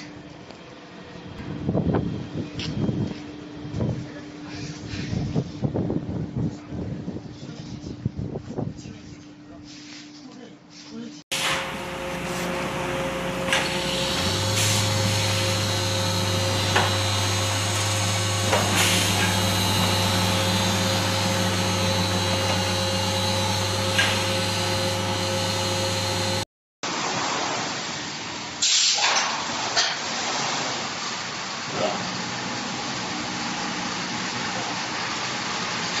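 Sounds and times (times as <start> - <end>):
deeper machine hum: 0.0 - 7.2, 11.3 - 26.5
machine hum: 11.3 - 26.5
short sharp hisses: 28.6 - 29.2.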